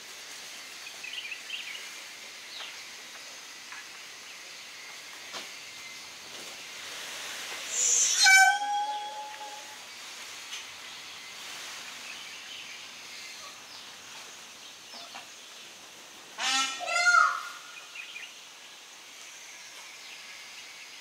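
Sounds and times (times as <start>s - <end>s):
steady outdoor hiss: 0.0s - 21.0s
peafowl harsh call: 7.7s - 9.8s, 16.4s - 17.8s.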